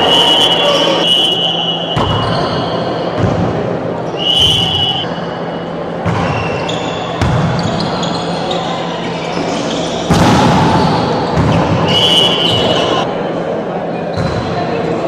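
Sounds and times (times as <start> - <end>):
voices in a gym: 0.0 - 15.0
volleyball being struck: 10.1 - 11.8.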